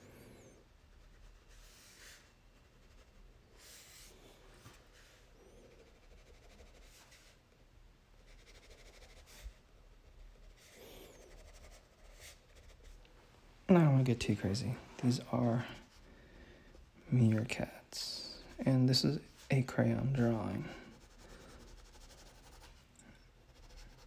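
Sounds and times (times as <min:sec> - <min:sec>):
crayon scratching on paper: 0:04.8 - 0:07.4, 0:08.2 - 0:13.0, 0:20.9 - 0:24.0.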